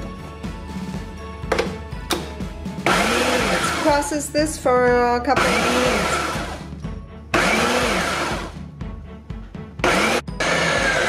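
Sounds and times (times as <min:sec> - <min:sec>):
blender motor chopping: 0:02.2 - 0:04.1, 0:05.3 - 0:06.7, 0:07.3 - 0:08.6, 0:09.8 - 0:11.0.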